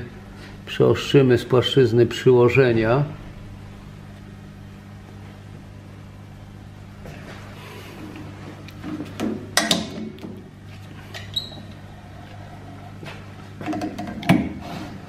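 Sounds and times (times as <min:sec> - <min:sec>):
metallic clanks and knocks: 0:09.2 - 0:10.4.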